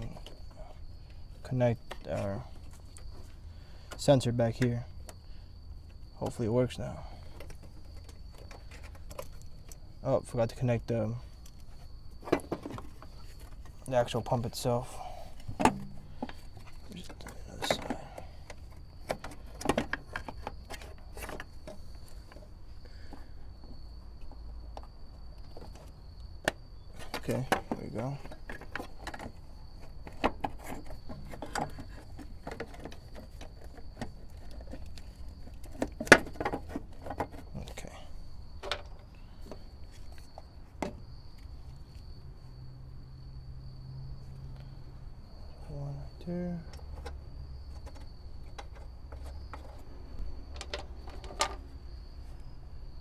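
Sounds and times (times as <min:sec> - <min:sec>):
light clicks and knocks: 0:46.7 - 0:51.6.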